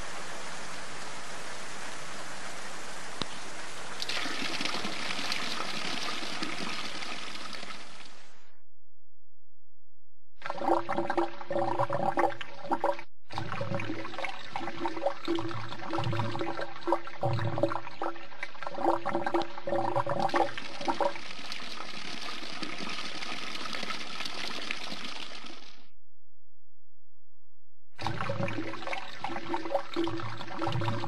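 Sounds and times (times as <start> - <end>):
running water rushing: 0.0 - 8.4
water splashing and pouring: 1.7 - 8.4, 10.4 - 25.9, 28.0 - 31.0.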